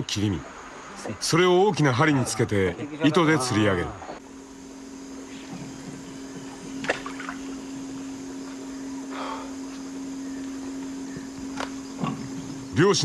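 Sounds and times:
steady low hum: 0.0 - 13.0
river water: 3.2 - 13.0.

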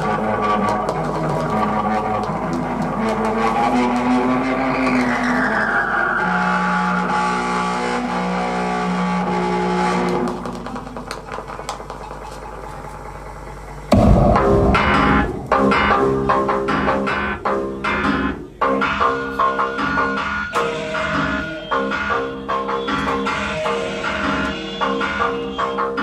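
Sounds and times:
loud band hit: 13.9 - 26.0.

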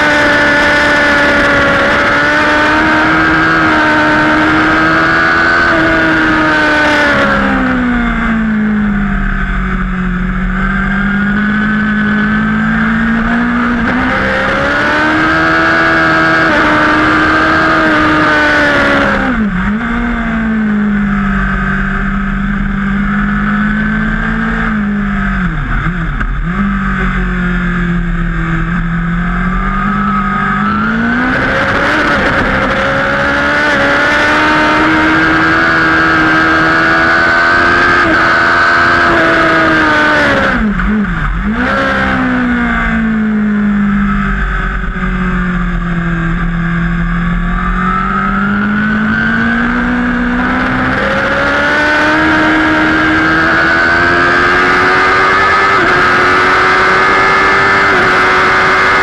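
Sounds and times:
motorcycle engine at high revs: 0.0 - 59.0.

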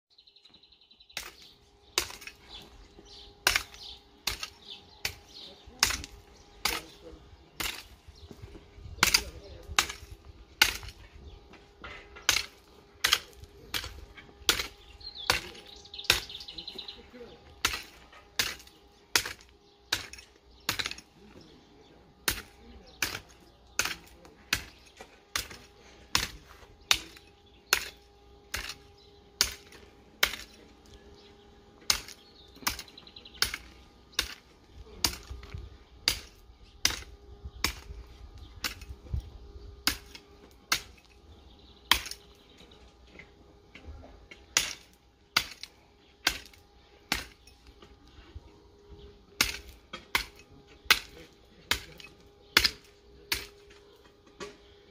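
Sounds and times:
hoe chopping into dry soil: 1.2 - 2.6, 3.2 - 11.2, 11.8 - 16.5, 17.2 - 21.5, 22.2 - 30.7, 31.8 - 38.0, 38.6 - 39.2, 39.8 - 41.2, 44.4 - 47.9, 49.3 - 53.7.

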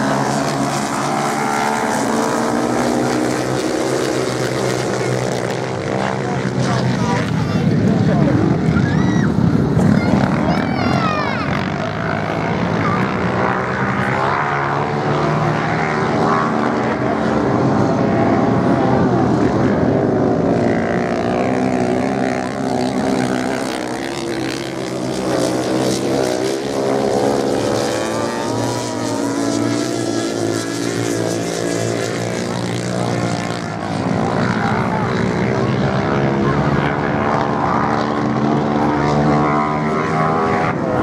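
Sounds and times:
racing motorcycle engines: 0.0 - 41.0.

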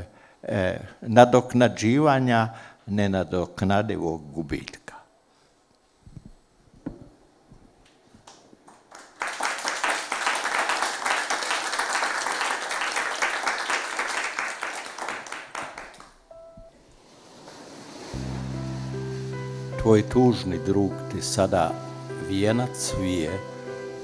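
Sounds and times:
small audience applauding: 8.2 - 16.3.

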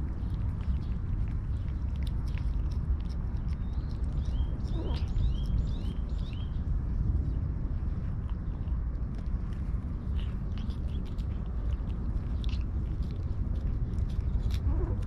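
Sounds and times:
cats licking and lapping: 0.0 - 15.0
low rumble: 0.0 - 15.0
bird chirping: 3.4 - 6.7.

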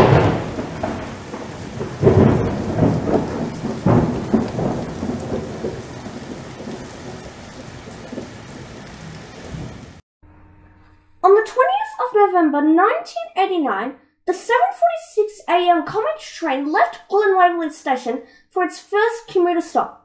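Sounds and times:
steady rain: 0.0 - 10.0
thunder rumbling: 0.0 - 10.0.

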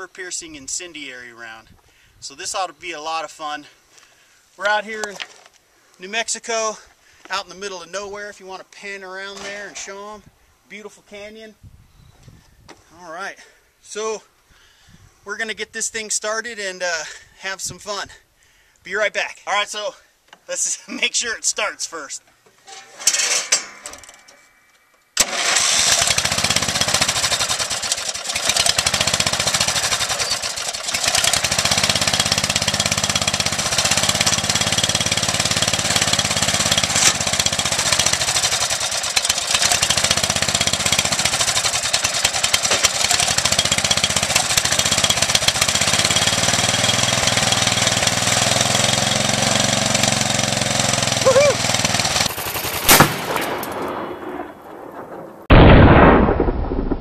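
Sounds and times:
lawnmower engine running: 25.2 - 53.2.

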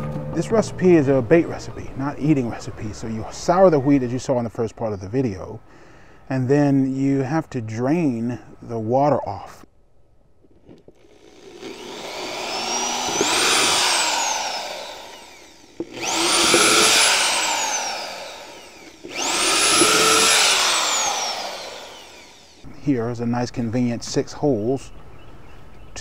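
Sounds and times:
electric drill whining: 10.9 - 22.7.

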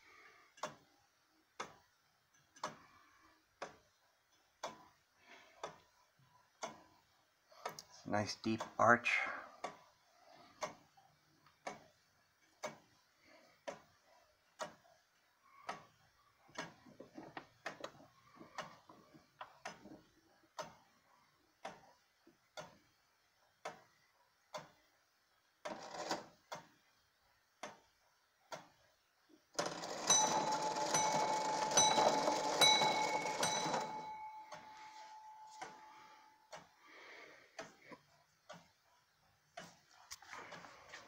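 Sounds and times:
faint clicks of clock hand: 0.0 - 32.6, 33.3 - 41.0
clock ticking: 0.0 - 41.0
clock bell striking: 29.7 - 35.8.

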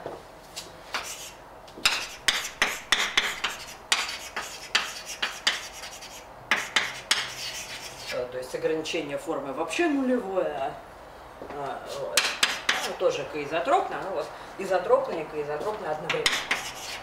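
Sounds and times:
chalk tapping and scratching: 1.0 - 8.2, 12.2 - 13.0, 16.1 - 17.0.

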